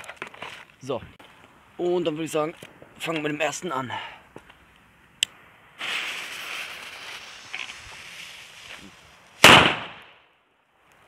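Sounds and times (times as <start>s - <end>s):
firecracker fuse hissing: 5.8s - 9.9s.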